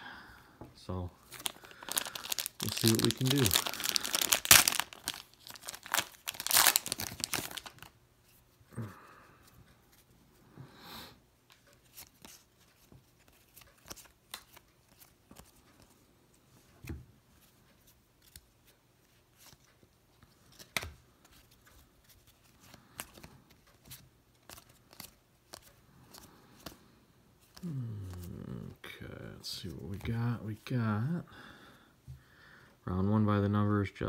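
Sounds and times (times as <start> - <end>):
wrapper rustle: 1.2 - 7.9.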